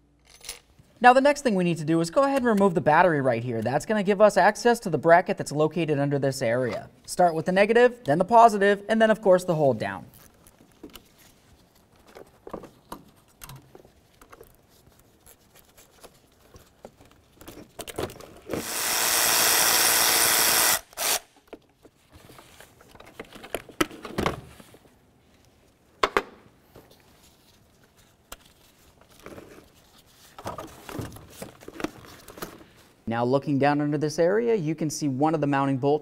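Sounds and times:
electric ratchet spinning: 0:18.5 - 0:21.4.

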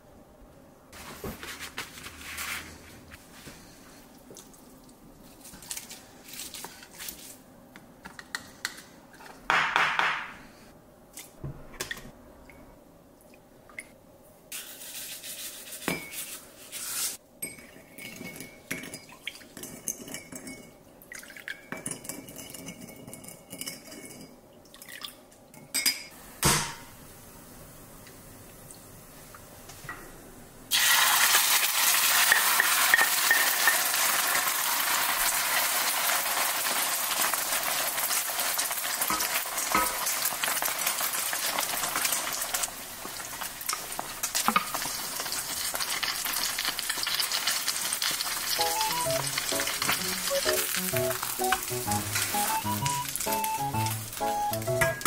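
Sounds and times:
utensils and dishes clinking: 0:17.4 - 0:20.8, 0:21.4 - 0:24.4, 0:32.2 - 0:34.5, 0:46.0 - 0:55.0.

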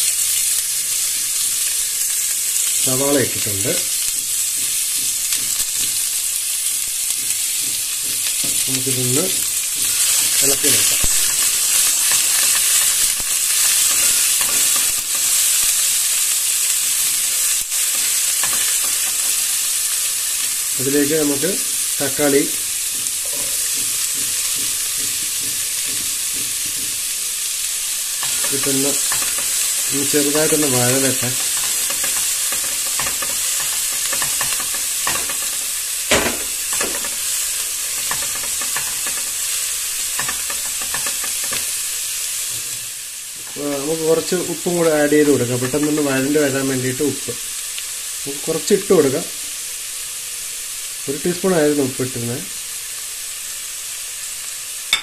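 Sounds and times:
onions sizzling in oil: 0:00.0 - 0:55.0
spatula scraping pot: 0:28.2 - 0:41.8.

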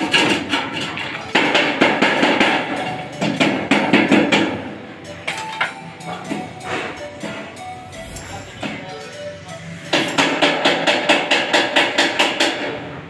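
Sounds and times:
hammer tapping sheet metal: 0:01.4 - 0:04.7, 0:09.9 - 0:12.8.

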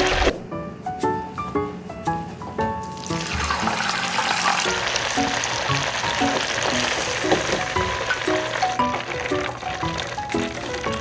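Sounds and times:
food deep-frying in hot oil: 0:02.9 - 0:11.0.

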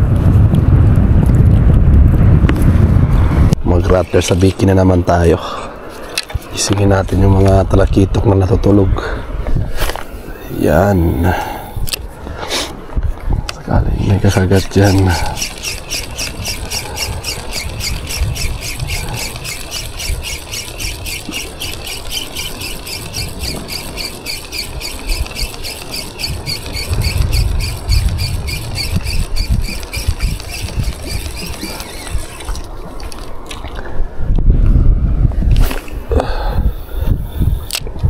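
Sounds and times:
wind: 0:00.0 - 0:38.0
fishing reel squeaking: 0:14.6 - 0:32.7.

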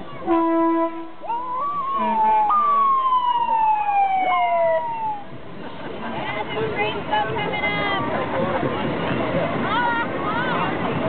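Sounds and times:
fire truck air horn blast: 0:00.2 - 0:01.2
siren wailing: 0:01.3 - 0:05.3.

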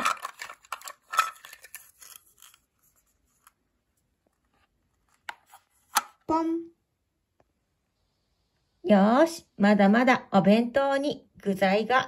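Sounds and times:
plastic toy food clicks and rustles: 0:00.0 - 0:03.6.

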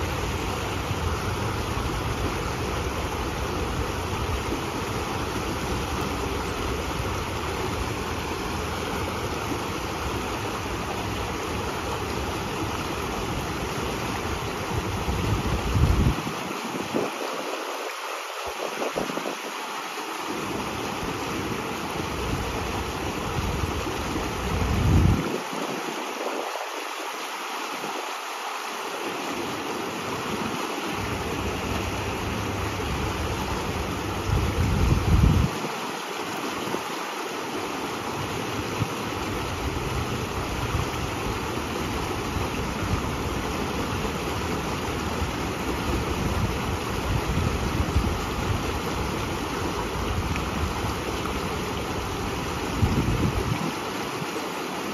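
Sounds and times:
water rushing down stone channel: 0:00.0 - 0:54.9
wind buffeting microphone: 0:14.4 - 0:19.5, 0:23.3 - 0:26.6, 0:31.0 - 0:35.8, 0:45.0 - 0:53.9.

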